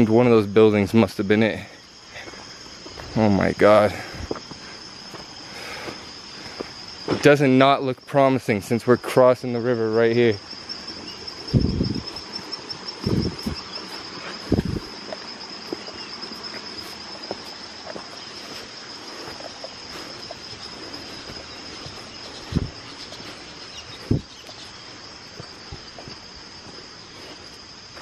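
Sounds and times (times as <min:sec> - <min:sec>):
insects buzzing: 0:00.0 - 0:28.0
footsteps on stones and leaves: 0:02.2 - 0:07.4, 0:10.6 - 0:28.0
low thumps: 0:21.2 - 0:22.8.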